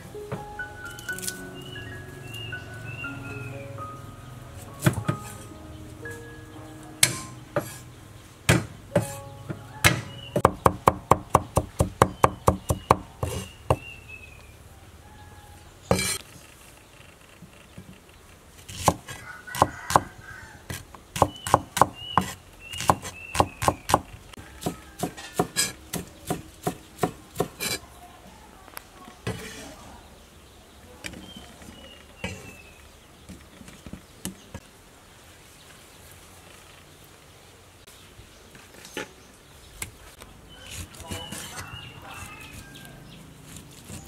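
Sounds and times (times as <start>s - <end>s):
knife chopping on wooden board: 7.0s - 7.8s, 8.5s - 9.2s, 9.8s - 13.9s, 15.9s - 16.2s, 18.7s - 20.1s, 20.7s - 24.0s, 24.6s - 27.8s.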